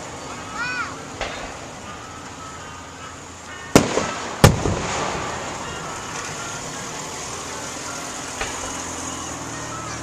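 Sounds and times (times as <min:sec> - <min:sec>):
firework bangs with echo: 0:01.2 - 0:01.6, 0:03.7 - 0:05.8.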